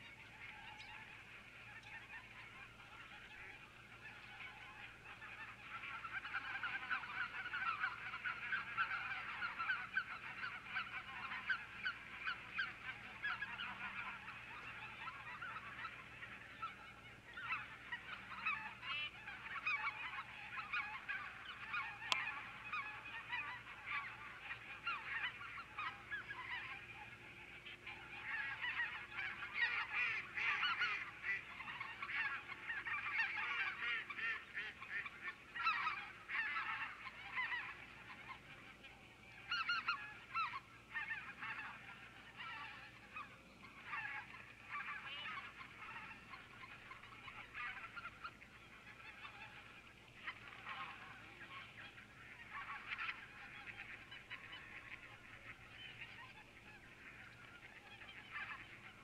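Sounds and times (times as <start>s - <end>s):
flock of geese honking: 0.0s - 59.0s.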